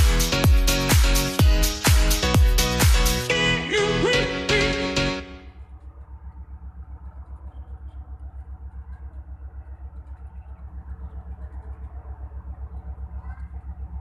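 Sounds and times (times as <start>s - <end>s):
engine idling with low throb: 5.5s - 14.0s.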